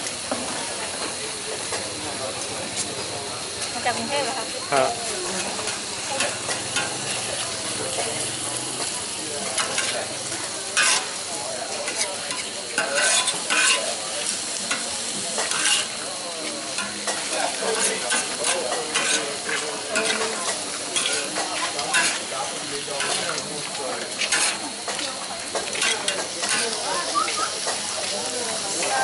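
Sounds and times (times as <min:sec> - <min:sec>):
food sizzling on griddle: 0:00.0 - 0:29.0
metal spatula scraping griddle: 0:05.3 - 0:07.5, 0:09.5 - 0:10.2, 0:10.8 - 0:11.2, 0:11.8 - 0:14.0, 0:14.6 - 0:16.0, 0:16.7 - 0:22.3, 0:23.0 - 0:23.4, 0:24.1 - 0:24.7, 0:25.6 - 0:26.8.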